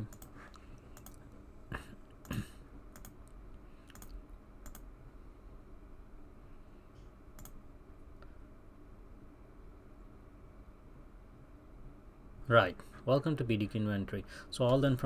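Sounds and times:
computer mouse clicks: 0:00.0 - 0:01.2, 0:02.2 - 0:04.9, 0:07.4 - 0:07.6
low steady hum: 0:00.0 - 0:15.0.

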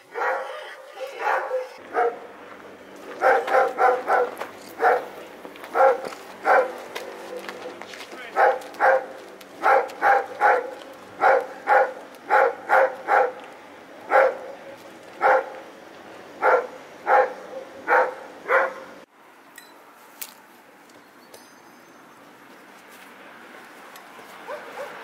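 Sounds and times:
dog barking: 0:00.1 - 0:02.3, 0:03.2 - 0:05.1, 0:05.7 - 0:07.7, 0:08.4 - 0:13.4, 0:14.1 - 0:14.6, 0:15.2 - 0:15.6, 0:16.4 - 0:19.0, 0:24.4 - 0:25.0.

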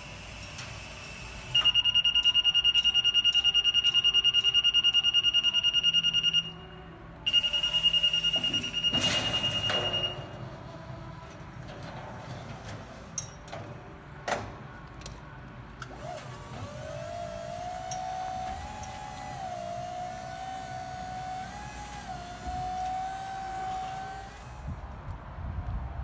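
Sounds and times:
scissor lift descent alarm beeping: 0:00.0 - 0:10.7, 0:16.5 - 0:24.6.

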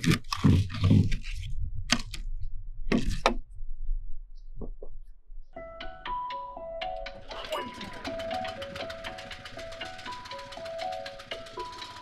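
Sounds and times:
background music with sustained tones: 0:05.6 - 0:12.0.

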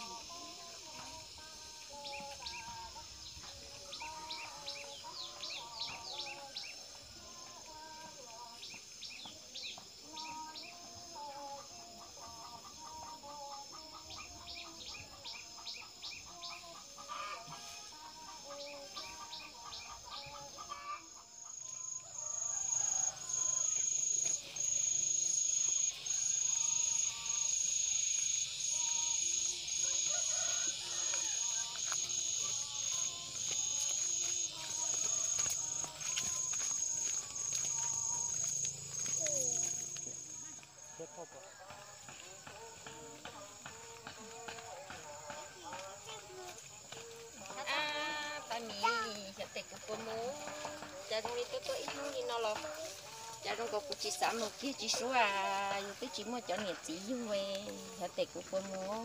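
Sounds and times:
insect chorus shrill drone: 0:00.0 - 0:59.0
small birds chirping: 0:01.9 - 0:06.8
chickens clucking: 0:11.5 - 0:47.6.

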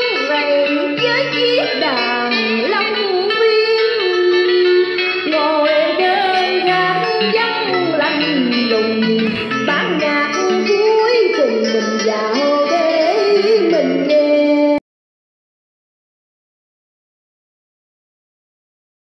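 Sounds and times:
recorded musical backing track: 0:00.0 - 0:14.8
woman singing into microphone: 0:00.0 - 0:14.8.

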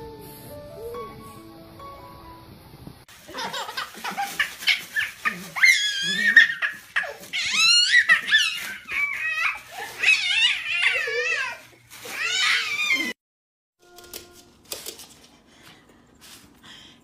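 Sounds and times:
baby squealing laughter: 0:03.3 - 0:13.1
puppy yipping and whining: 0:04.6 - 0:11.4.

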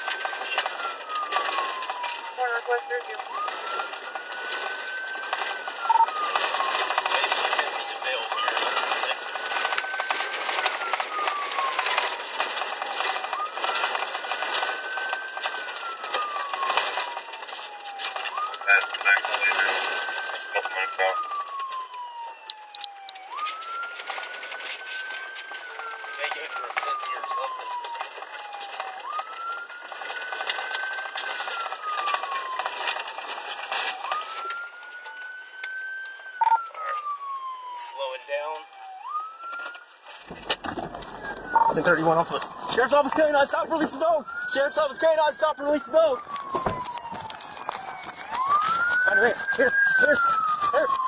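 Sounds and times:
police siren wailing: 0:00.0 - 0:51.0
car clatter and rattling: 0:40.3 - 0:41.5.

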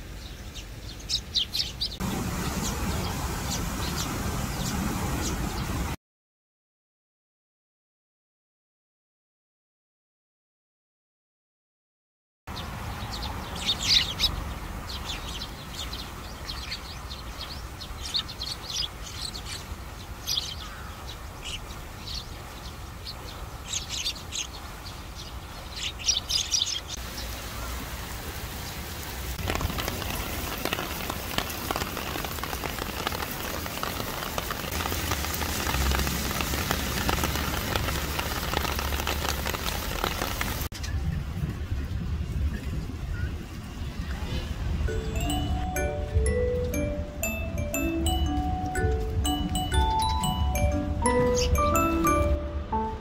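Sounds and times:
sparrows chirping: 0:00.0 - 0:05.8, 0:12.5 - 0:27.8, 0:44.9 - 0:53.0
heavy rain hiss: 0:02.0 - 0:06.0, 0:26.9 - 0:40.7, 0:44.7 - 0:53.0.

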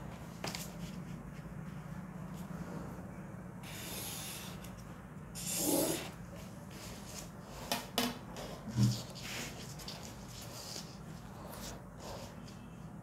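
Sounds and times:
ruler sliding on paper: 0:03.6 - 0:04.8.

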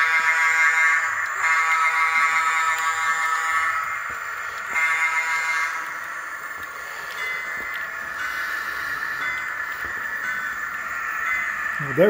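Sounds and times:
model locomotive horn blasts: 0:00.0 - 0:03.8, 0:04.6 - 0:05.9.

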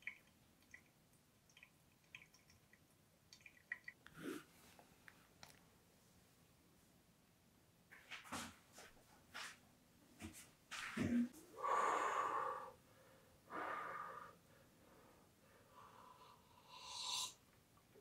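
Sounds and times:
breathy exhale: 0:11.6 - 0:17.4.

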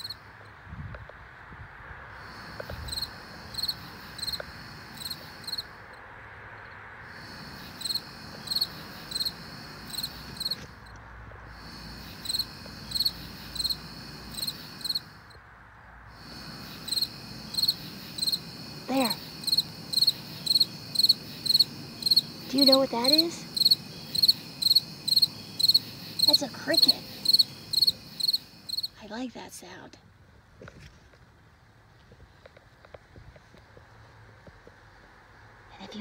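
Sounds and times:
cricket chirping: 0:00.0 - 0:00.6, 0:02.1 - 0:29.3.

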